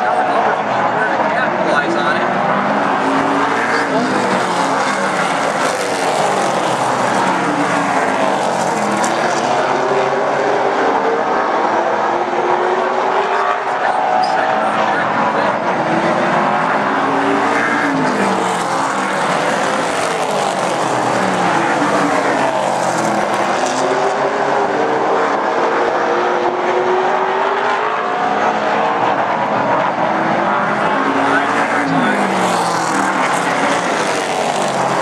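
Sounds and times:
race car engines passing: 0.0s - 35.0s.

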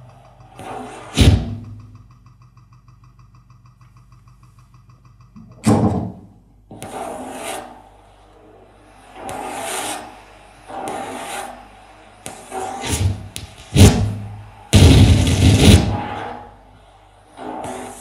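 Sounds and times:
loud low thump: 14.8s - 16.0s.

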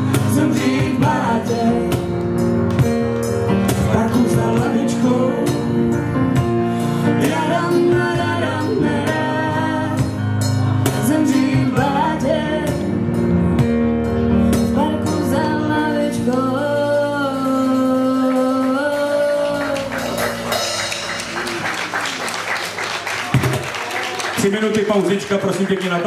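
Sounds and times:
bass guitar: 0.0s - 22.0s
keyboard: 0.0s - 23.6s
person singing: 3.8s - 6.0s, 7.1s - 13.0s, 14.7s - 20.2s.

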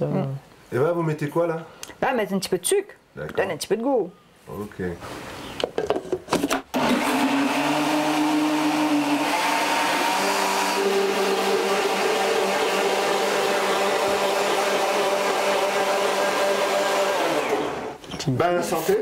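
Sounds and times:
blender motor running: 6.7s - 18.0s.

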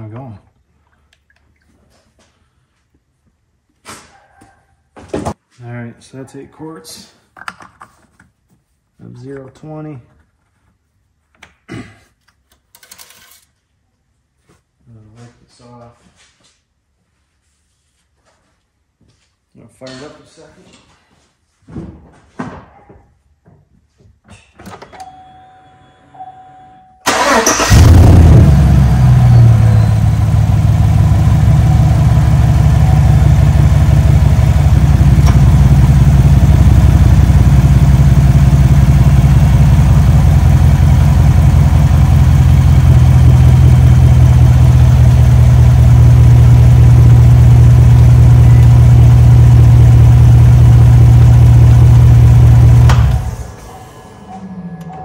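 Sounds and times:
car engine starting and idling: 27.0s - 55.0s.

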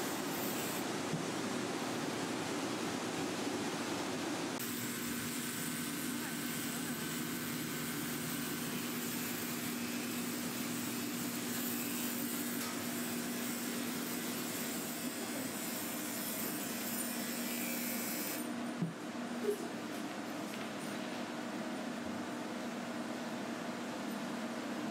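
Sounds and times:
electric clippers humming: 0.0s - 0.8s, 4.6s - 18.5s.

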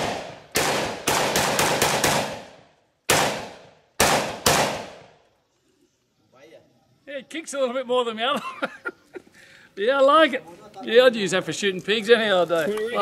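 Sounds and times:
rifle shots with ringing tail: 0.0s - 5.2s.

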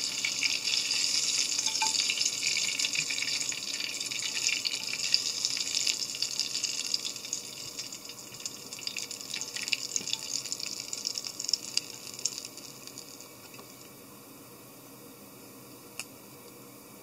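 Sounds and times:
hot oil sizzling in a frying pan: 0.0s - 13.9s.

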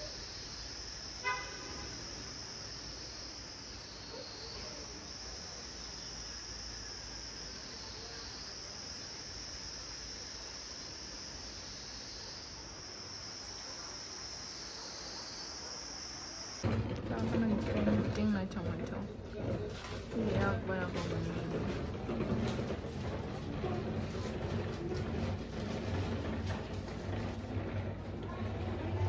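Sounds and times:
high-pitched insect chorus: 0.0s - 21.8s
short vehicle horn toot: 1.2s - 1.9s.

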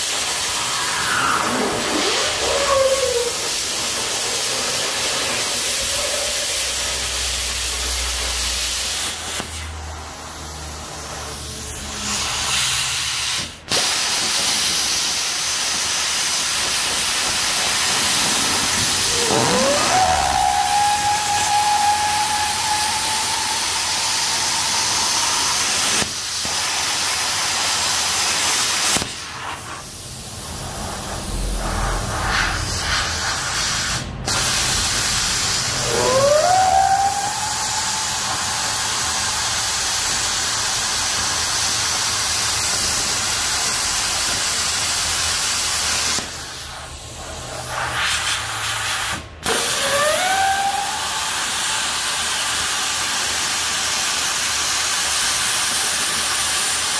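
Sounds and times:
hissing cutting noise: 0.0s - 9.2s, 16.3s - 26.7s, 34.4s - 41.1s
power tool whining: 17.6s - 26.1s, 35.7s - 39.8s.

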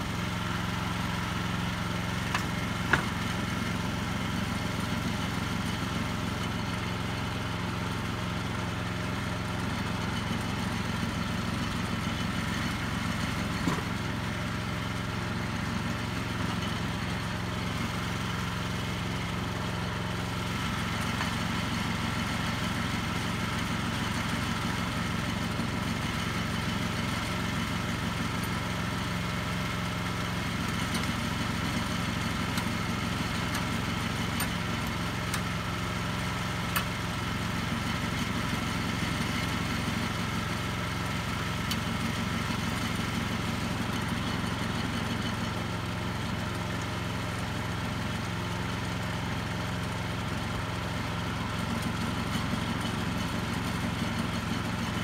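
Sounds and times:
sawmill engine running: 0.0s - 55.0s.

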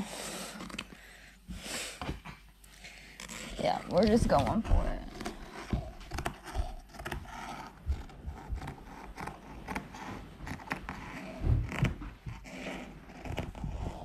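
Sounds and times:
scissors cutting fabric: 3.2s - 14.0s.

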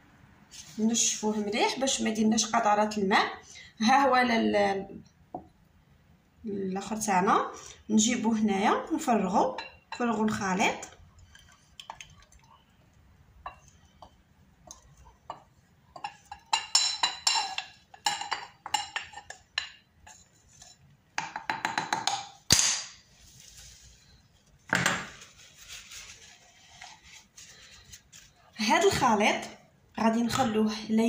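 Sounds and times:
glass clinking: 15.3s - 19.8s.

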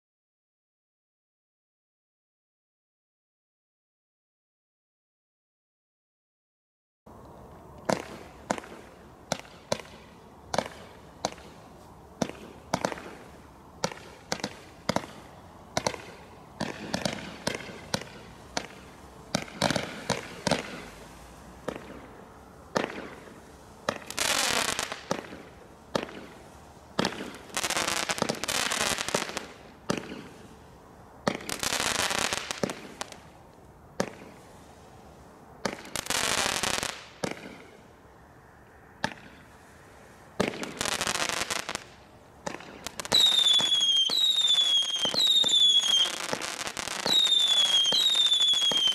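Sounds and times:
fireworks bangs and cracks: 7.8s - 30.4s, 31.2s - 33.3s, 34.0s - 34.6s, 35.6s - 37.7s, 40.4s - 48.9s
fireworks rushing bursts: 7.8s - 37.9s, 39.0s - 48.9s.

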